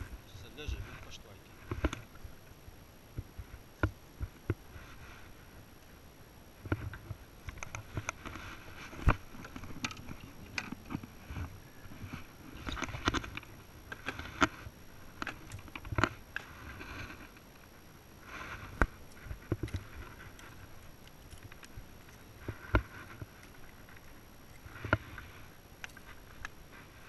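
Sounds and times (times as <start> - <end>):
clicks and knocks in a boat: 6.6 - 17.4
rustling: 6.6 - 27.0.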